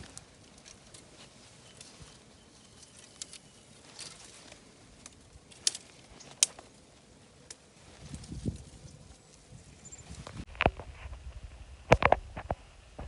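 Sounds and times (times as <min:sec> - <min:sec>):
dry stems snapping: 0:02.8 - 0:06.8, 0:07.4 - 0:08.7
footsteps through dry grass: 0:07.6 - 0:11.4.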